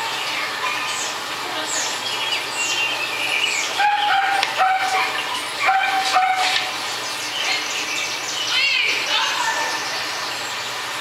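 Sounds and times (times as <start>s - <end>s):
songbirds chirping: 0.0s - 11.0s
dog barking: 3.8s - 6.7s.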